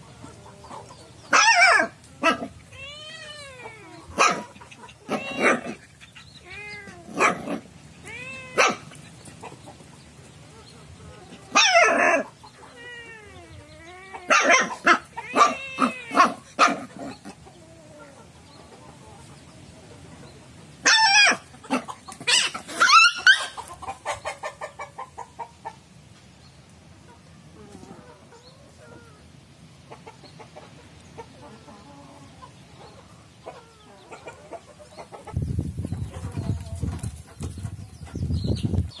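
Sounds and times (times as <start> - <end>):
animal cries: 1.3 - 9.0, 11.5 - 18.3.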